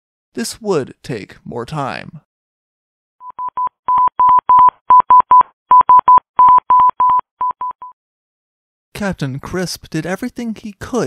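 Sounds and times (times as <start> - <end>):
morse code beeps: 3.2 - 8.0.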